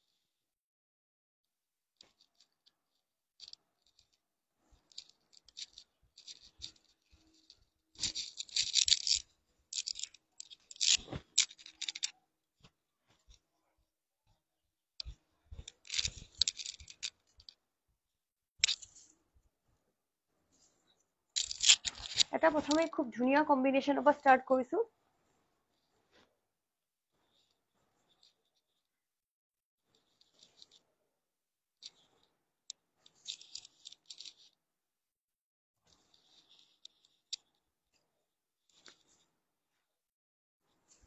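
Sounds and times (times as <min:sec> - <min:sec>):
clothing rustling and crinkling: 0:02.0 - 0:13.9, 0:15.0 - 0:17.7, 0:20.4 - 0:23.4, 0:31.8 - 0:34.6, 0:35.8 - 0:38.1.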